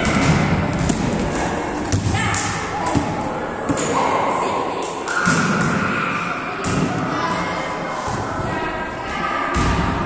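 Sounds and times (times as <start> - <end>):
volleyball being hit and thudding: 0.0 - 3.9, 6.6 - 7.1
din of children's voices: 2.2 - 10.0.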